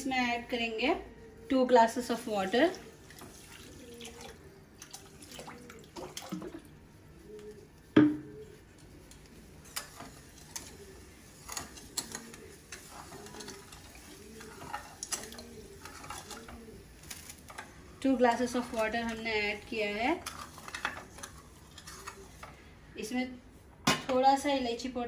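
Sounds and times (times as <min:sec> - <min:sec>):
spatula stirring in pan: 0:04.9 - 0:22.8
spatula tapping pan: 0:09.1 - 0:10.8, 0:11.4 - 0:16.6.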